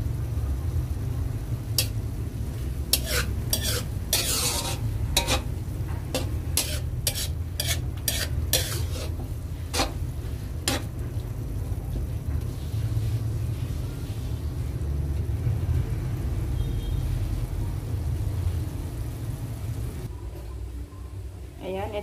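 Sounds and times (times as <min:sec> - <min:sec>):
light sizzling: 0:00.0 - 0:20.1
spatula scraping frying pan: 0:01.8 - 0:11.0.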